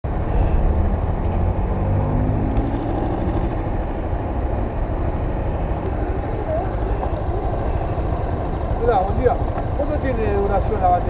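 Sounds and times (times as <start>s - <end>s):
street traffic passing: 0.0s - 11.0s
motorcycle engine idling: 2.5s - 11.0s.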